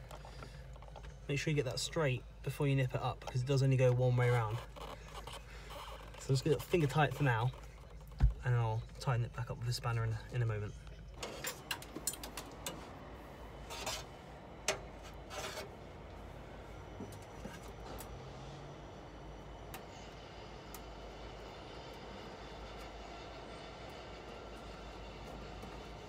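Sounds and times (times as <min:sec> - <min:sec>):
low background hum: 0:00.0 - 0:26.0
short rustling scrapes: 0:13.6 - 0:14.2, 0:15.0 - 0:15.8.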